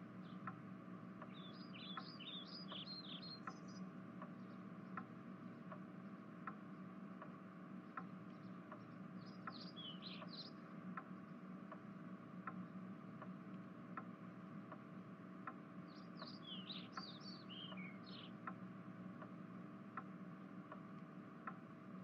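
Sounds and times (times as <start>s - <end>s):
low steady hum: 0.0s - 22.0s
clock ticking: 2.0s - 11.1s, 13.2s - 17.1s.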